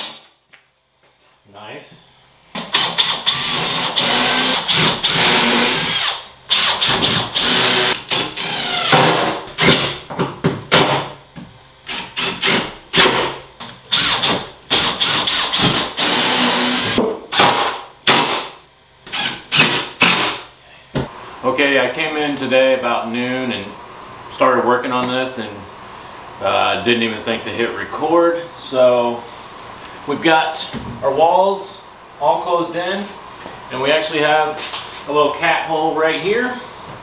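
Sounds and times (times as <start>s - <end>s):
power drill running on wood: 2.7s - 9.9s, 11.9s - 13.2s, 13.9s - 17.4s, 19.1s - 20.3s.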